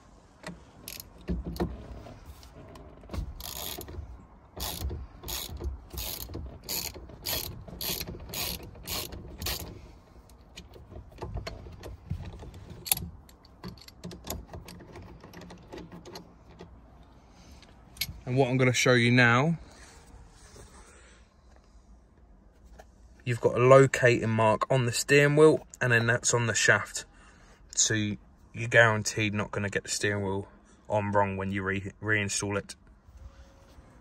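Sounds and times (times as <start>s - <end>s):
ratchet wrench clicking: 0.9s - 1.1s, 3.4s - 4.0s, 4.6s - 9.8s.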